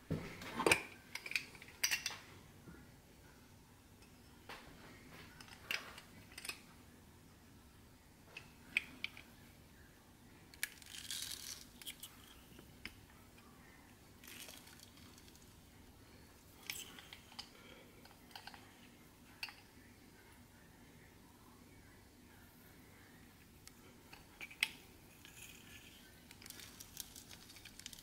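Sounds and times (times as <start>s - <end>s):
rustling crinkling: 25.2s - 28.0s.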